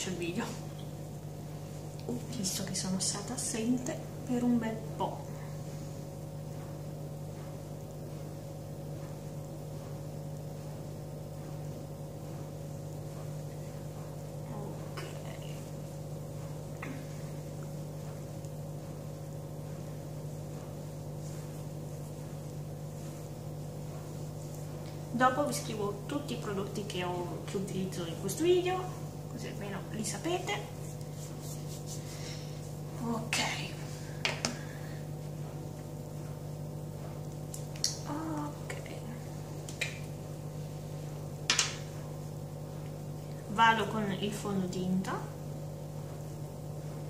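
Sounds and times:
steady low hum: 0.0s - 47.0s.

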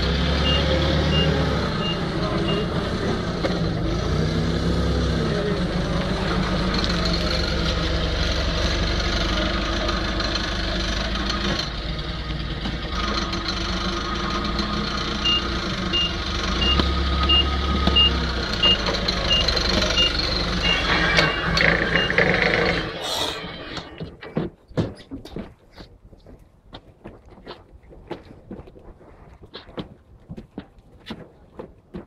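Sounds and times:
forklift engine running: 0.0s - 24.1s
reversing alarm beeps: 0.4s - 2.7s, 15.2s - 22.7s.

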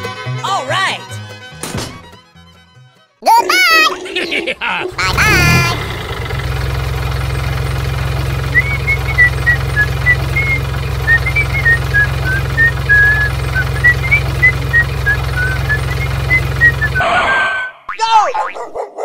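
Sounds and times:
truck engine rumbling: 3.4s - 17.1s
person whistling: 8.5s - 17.0s.

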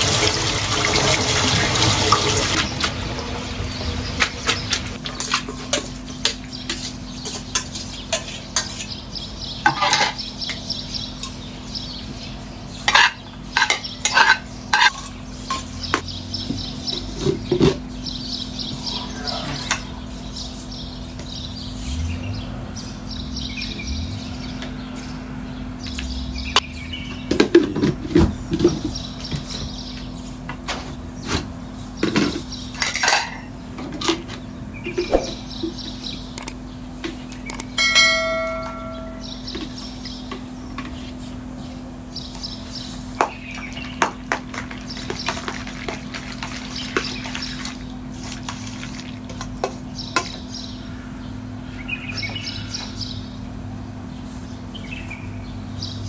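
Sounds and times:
spoons clinking against metal bowl: 5.1s - 9.0s, 9.6s - 11.4s, 12.9s - 15.8s, 37.8s - 40.0s
steady low hum: 10.3s - 33.8s.

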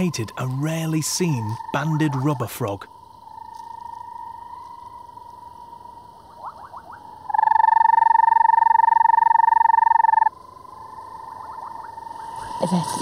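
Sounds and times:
faint frog trill: 0.0s - 5.3s, 6.2s - 13.0s
short rising frog notes: 6.3s - 10.3s
frog trilling loudly: 6.3s - 12.9s.

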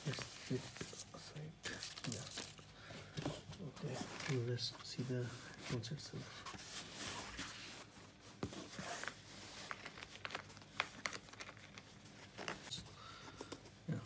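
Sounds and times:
case unzipping and rustling: 8.5s - 12.7s.

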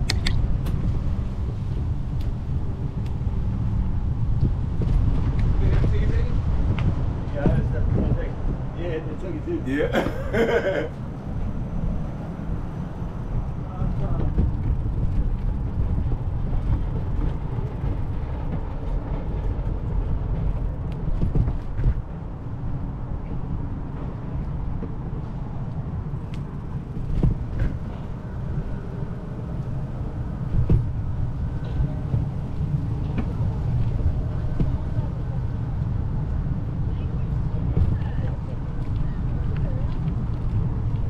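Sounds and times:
wind buffeting: 0.0s - 41.0s.

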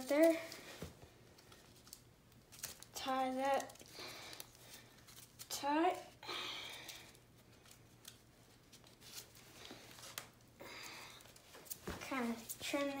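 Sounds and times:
cord rustling and rubbing: 0.0s - 5.5s, 7.0s - 10.4s.

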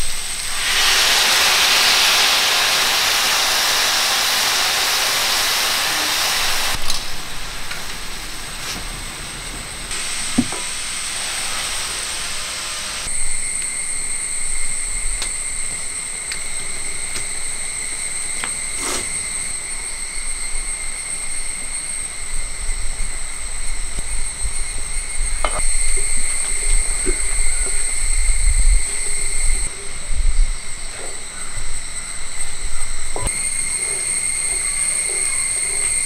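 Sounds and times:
fire crackles: 0.0s - 13.8s.

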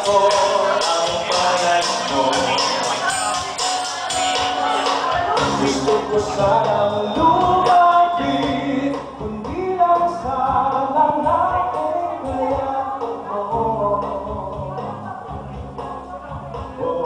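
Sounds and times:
man singing into microphone: 0.0s - 3.6s, 5.3s - 15.2s, 16.6s - 17.0s
karaoke backing track: 0.0s - 17.0s.

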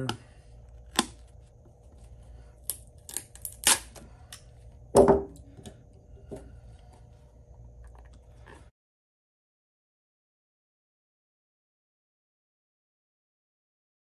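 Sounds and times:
pliers knocking on table: 5.0s - 5.4s.

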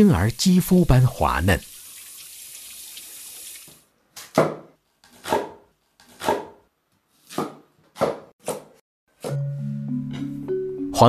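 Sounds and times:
tap water running: 0.3s - 3.9s
knife chopping on cutting board: 4.2s - 6.6s, 7.2s - 9.4s.

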